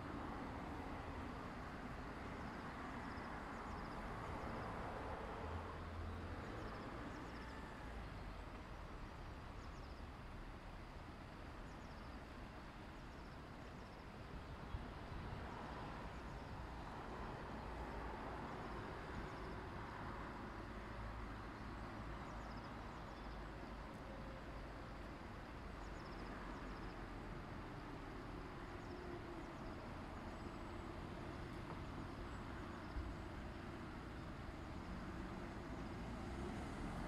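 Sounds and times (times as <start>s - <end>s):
stream running over rocks: 7.8s - 37.0s.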